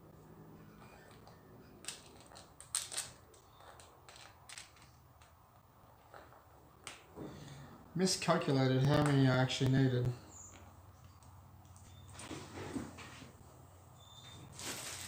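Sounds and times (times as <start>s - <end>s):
plastic bricks clicking: 1.8s - 5.4s.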